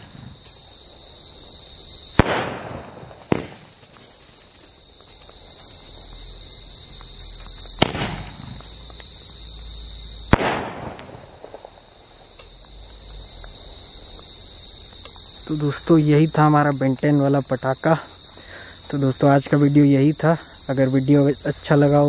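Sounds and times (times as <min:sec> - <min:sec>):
crickets chirping: 0:00.0 - 0:22.0
faint firework crackles: 0:02.0 - 0:15.4
firework bangs: 0:02.1 - 0:04.3, 0:07.7 - 0:09.0, 0:10.3 - 0:12.4.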